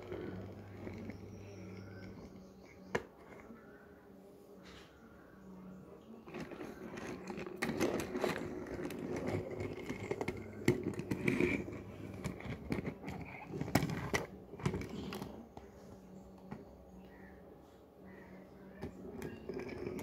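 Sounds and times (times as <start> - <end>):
toy cars rolling on plastic: 0.0 - 3.7, 6.0 - 16.6, 18.8 - 20.0.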